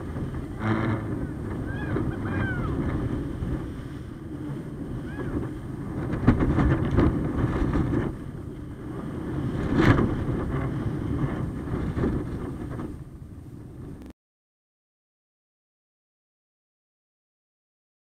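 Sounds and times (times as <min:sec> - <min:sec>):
wind buffeting microphone: 0:00.0 - 0:14.1.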